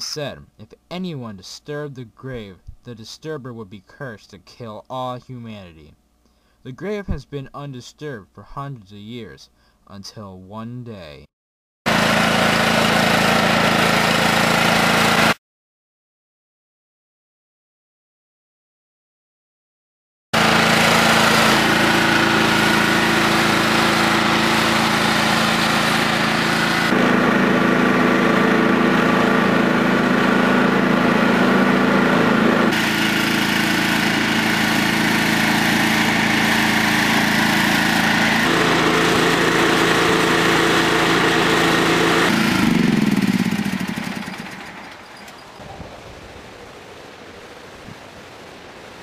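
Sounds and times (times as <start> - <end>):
engine winding down: 11.9 - 15.4, 20.4 - 45.6
riding lawn mower engine running: 11.9 - 15.4, 20.4 - 47.7.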